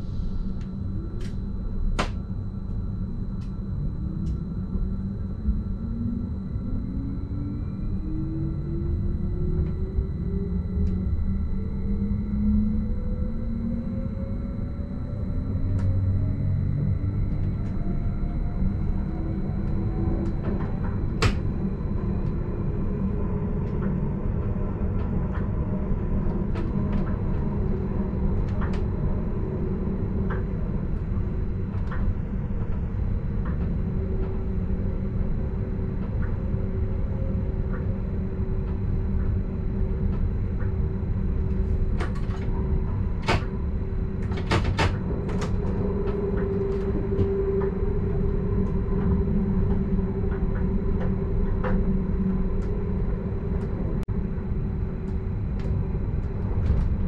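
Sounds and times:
train running gear rumble: 16.6 - 57.0.

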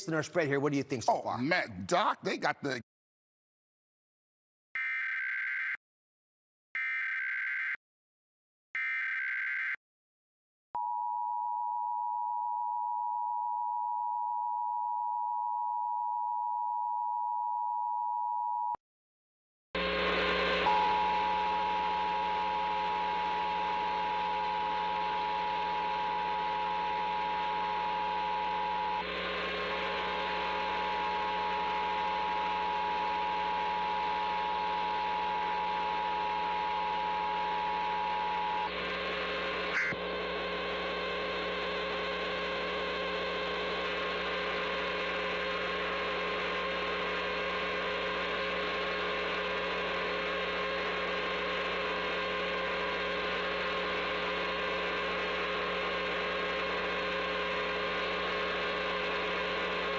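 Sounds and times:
loud distorted buzz: 19.8 - 59.9.

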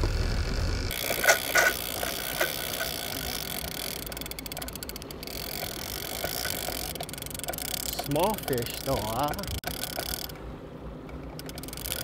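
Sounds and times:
boat engine rumble: 0.0 - 11.0.

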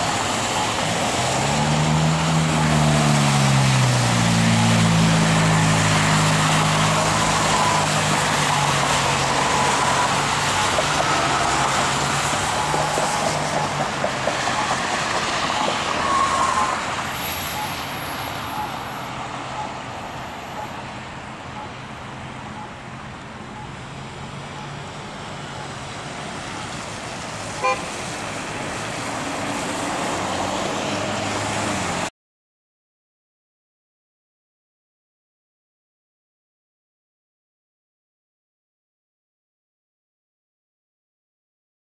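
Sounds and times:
cars driving past and idling: 0.0 - 32.1.

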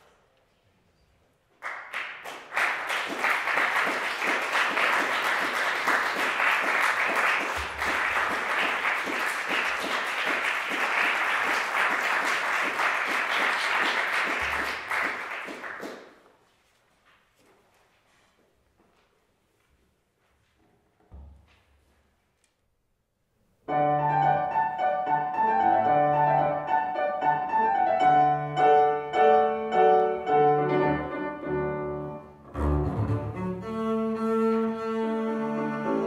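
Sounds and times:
audience applauding: 1.6 - 16.3.

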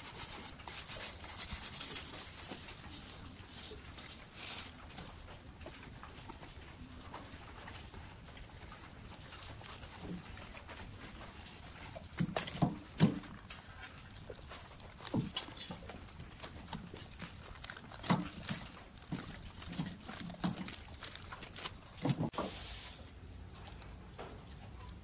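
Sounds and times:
knocks and clinks: 15.1 - 22.3
short hiss: 22.3 - 23.1.

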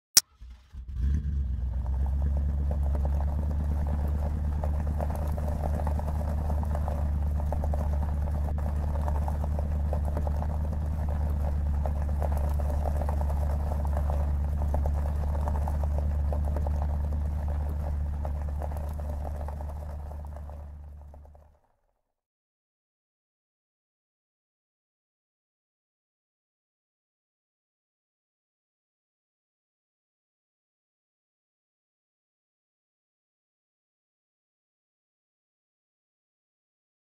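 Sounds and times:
vehicle engine idling: 0.2 - 21.5.

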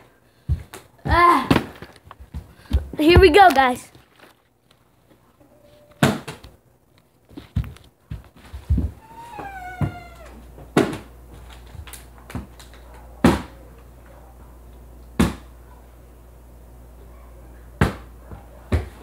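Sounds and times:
meow-like cry: 9.0 - 10.4.

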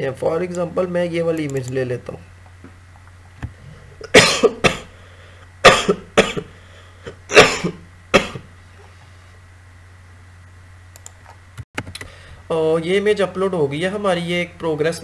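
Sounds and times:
faint steady hum: 0.0 - 15.0
man coughing: 4.0 - 5.0, 5.6 - 8.5.

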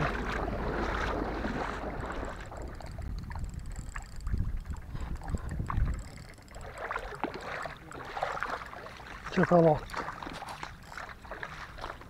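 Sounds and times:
wind buffeting microphone: 0.0 - 8.2
light water at shoreline: 0.0 - 12.0.

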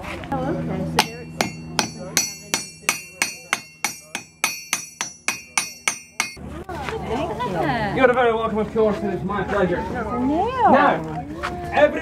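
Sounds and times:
hammer striking metal: 1.0 - 6.4.

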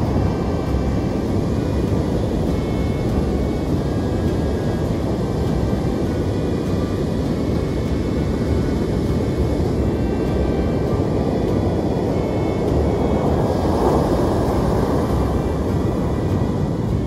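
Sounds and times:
heavy surf breaking: 9.8 - 17.0.

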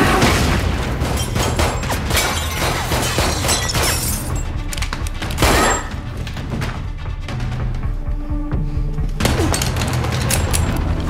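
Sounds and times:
film music: 0.0 - 11.0
glass breaking: 0.2 - 4.5, 5.4 - 5.9.

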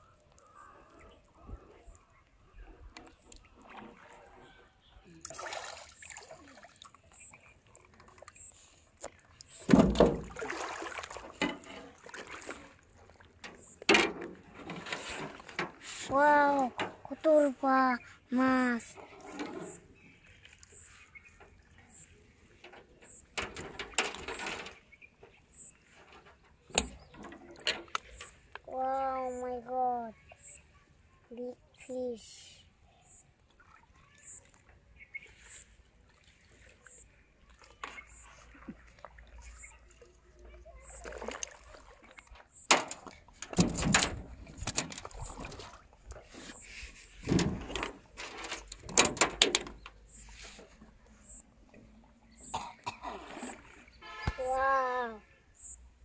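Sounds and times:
clicks and knocks handling fish: 0.0 - 5.4, 6.9 - 17.6, 18.4 - 29.4, 33.4 - 52.0
faint high chirp: 7.1 - 7.6, 19.6 - 22.3, 25.0 - 26.0, 30.1 - 32.1, 32.8 - 35.7, 36.8 - 41.3, 51.1 - 51.5, 52.3 - 52.6, 55.6 - 55.8
rustling and scraping: 13.4 - 17.3, 18.8 - 28.5, 42.3 - 51.0.

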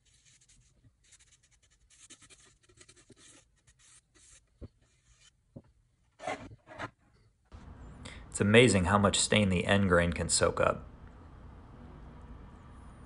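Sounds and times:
foam brush swishing on wood: 0.0 - 5.4.

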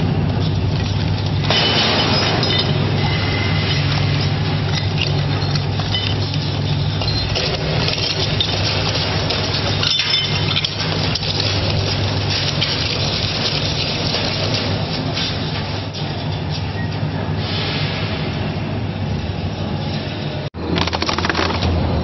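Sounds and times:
shredder blades crunching: 20.6 - 22.0.

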